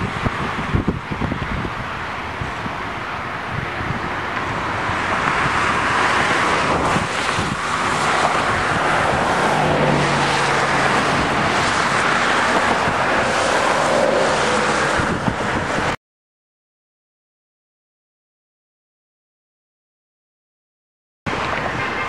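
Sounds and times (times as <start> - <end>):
wind on microphone: 0.0 - 16.0
train wheels on rail: 10.5 - 15.3.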